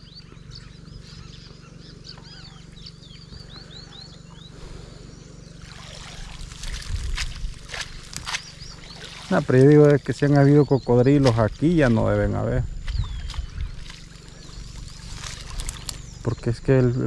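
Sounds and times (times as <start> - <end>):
birds chirping: 0.0 - 17.0
rustling: 14.2 - 16.1.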